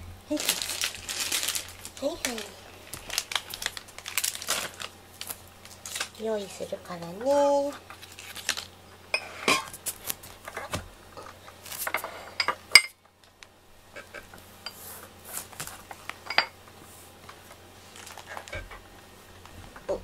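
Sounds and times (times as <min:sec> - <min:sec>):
dishes clinking: 0:16.2 - 0:16.6.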